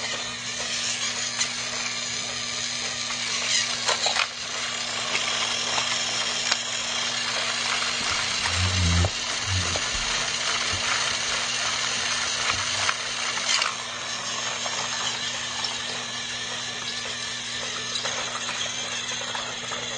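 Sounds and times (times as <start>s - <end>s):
toy train motor whirring: 0.0s - 19.9s
low thuds: 8.0s - 11.0s.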